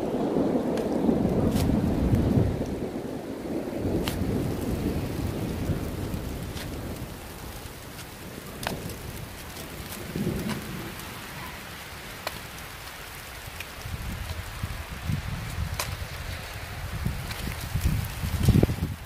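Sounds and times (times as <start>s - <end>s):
low thunder rumbling: 0.0s - 19.0s
rain falling steadily: 0.0s - 19.0s
raindrops ticking: 0.0s - 19.0s.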